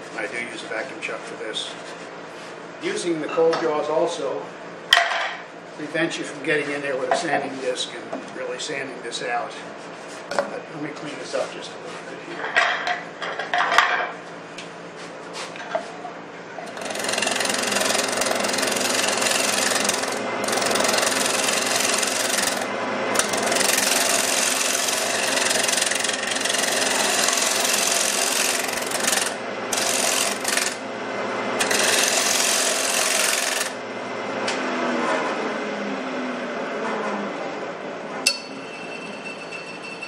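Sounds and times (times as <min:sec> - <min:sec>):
tool shaving spinning wood: 0:16.7 - 0:30.8, 0:31.6 - 0:33.8
lathe humming: 0:16.7 - 0:31.0, 0:31.6 - 0:33.8.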